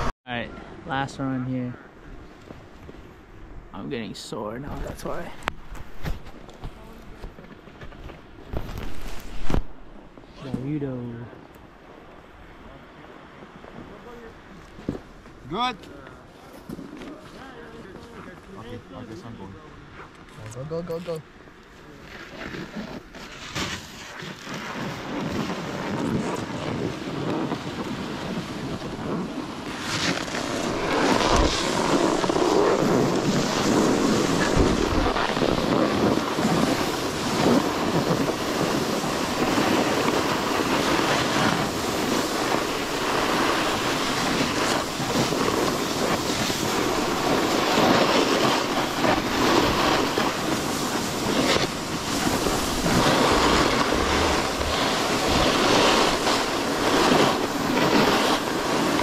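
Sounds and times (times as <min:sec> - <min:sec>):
snowboard scraping over snow: 0:03.8 - 0:11.2, 0:13.7 - 0:19.6, 0:21.8 - 0:59.0
wind on microphone: 0:22.3 - 0:59.0.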